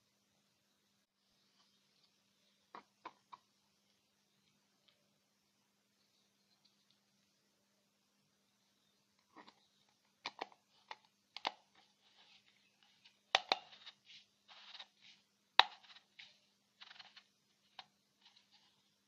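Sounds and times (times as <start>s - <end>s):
plastic parts clicking: 9.2s - 14.9s
plastic rubbing: 9.3s - 18.9s.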